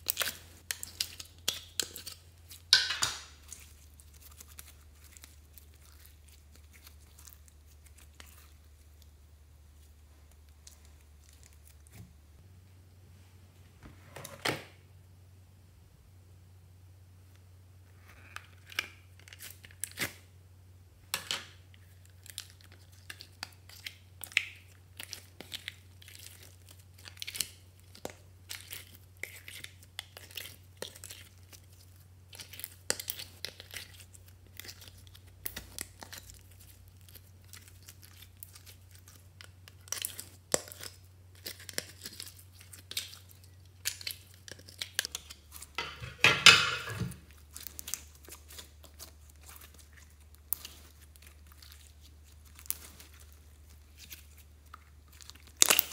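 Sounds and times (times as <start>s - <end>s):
faint low hum: 0.0s - 55.7s
sticky slime clicks and crackles: 47.5s - 55.9s.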